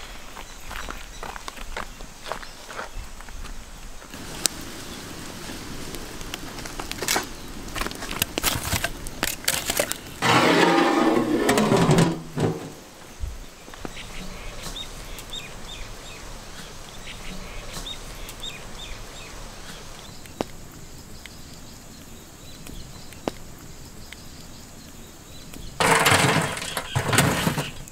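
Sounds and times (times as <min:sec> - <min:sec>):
wood fire crackling: 0:04.1 - 0:27.9
loud rough noise: 0:10.2 - 0:12.8
bird chirping: 0:13.4 - 0:25.8.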